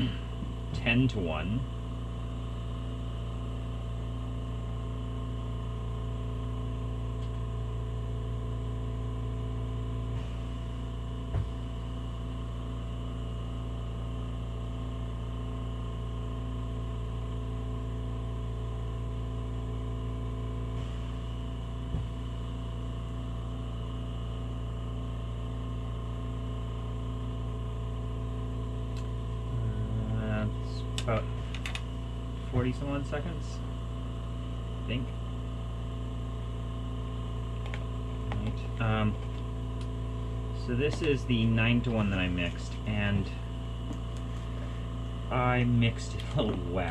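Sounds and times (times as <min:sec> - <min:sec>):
gas torch burning: 0:28.9 - 0:35.1, 0:36.7 - 0:46.9.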